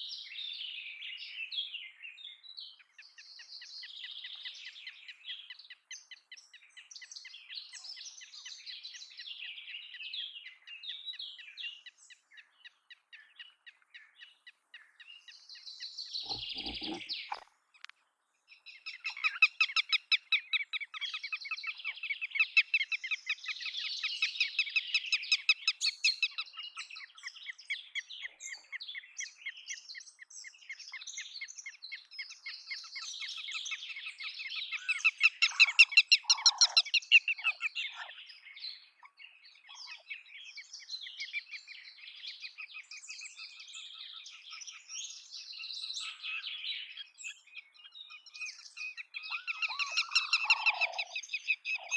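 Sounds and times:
lapwing calling: 16.1 - 17.4, 18.8 - 22.9, 34.7 - 38.2, 48.5 - 51.9.

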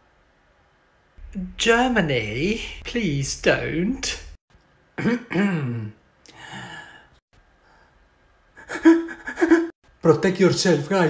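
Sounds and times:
breathy sigh: 6.3 - 8.0.

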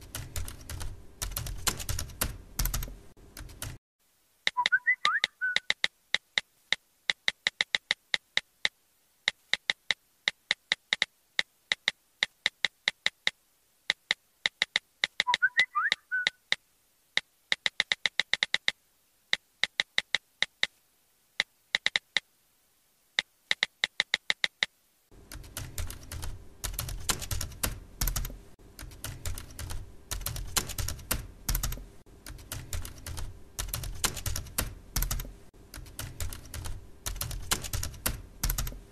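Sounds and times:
keyboard typing clicks: 0.0 - 3.8, 4.5 - 16.6, 17.2 - 20.8, 21.8 - 22.2, 23.5 - 24.7, 25.3 - 38.9.

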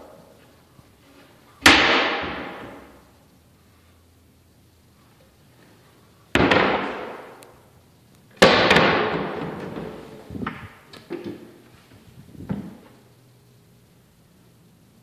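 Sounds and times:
loud sudden bangs: 1.6 - 2.9, 6.4 - 7.4, 8.4 - 9.6.

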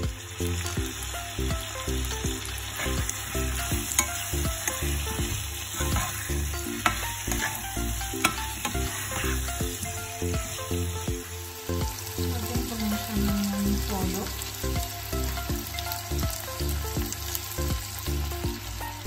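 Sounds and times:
chicken wings sizzling in oil: 0.0 - 19.0
metal spoon stirring: 2.8 - 10.1
spoon knocking against pan: 6.7 - 7.6.

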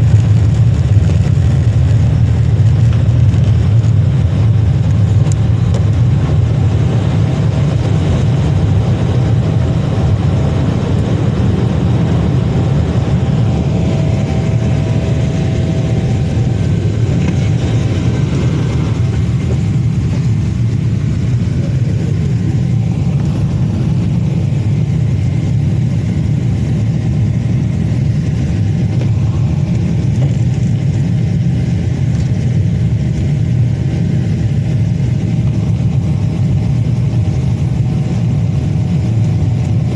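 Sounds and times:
rushing air: 0.0 - 31.8
faint steady whine: 0.0 - 39.9
jet engines rumbling: 0.0 - 39.9.

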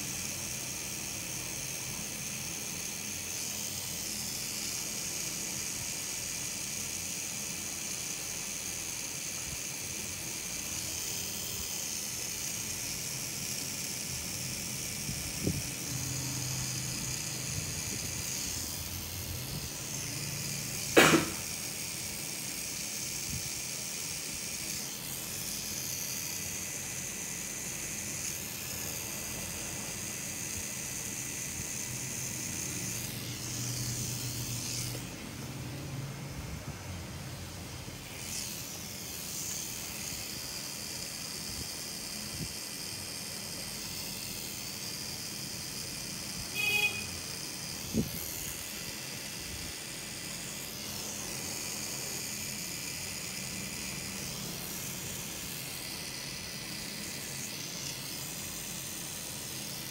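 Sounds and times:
tattoo machine humming: 0.0 - 59.9
sharp click: 20.9 - 21.5.

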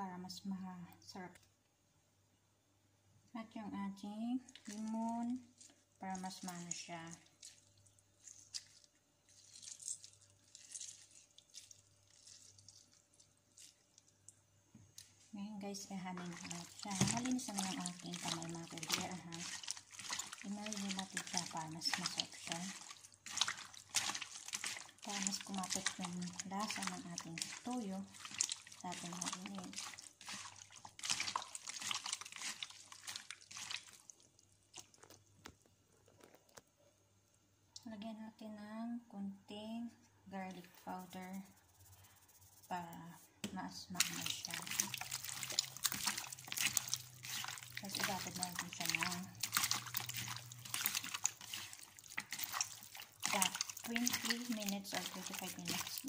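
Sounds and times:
lemon juice squishing on meat: 4.5 - 14.4, 15.0 - 35.3, 43.9 - 56.0.

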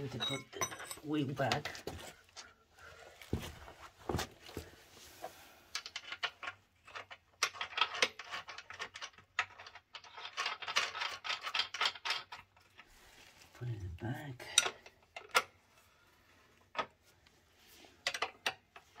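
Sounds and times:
metallic clicks and rattles: 5.7 - 12.9.

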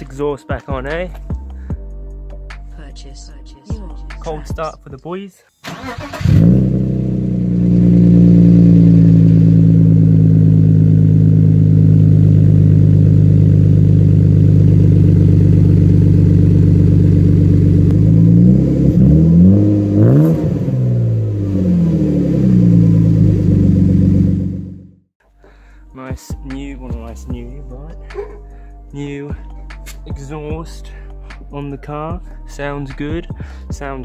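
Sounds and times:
car engine idling: 5.8 - 25.0
engine revving: 5.8 - 25.1.

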